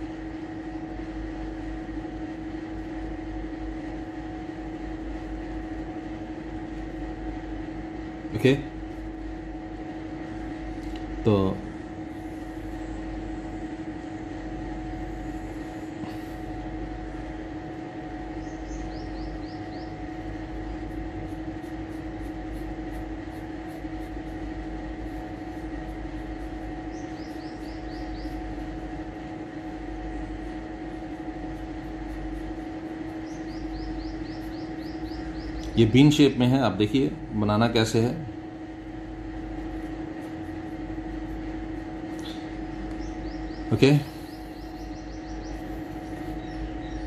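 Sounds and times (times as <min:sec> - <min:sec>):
machine hum: 0:00.0 - 0:47.0
bird chirping: 0:18.3 - 0:20.9, 0:26.4 - 0:28.8, 0:32.6 - 0:36.4, 0:42.0 - 0:47.0
pen scratching on paper: 0:20.8 - 0:26.7.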